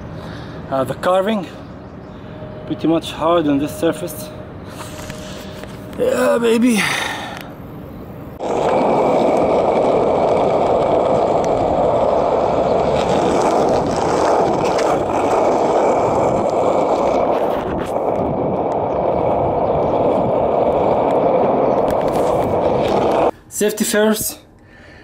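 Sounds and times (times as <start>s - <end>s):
skateboard wheels rolling on asphalt: 4.6s - 23.4s.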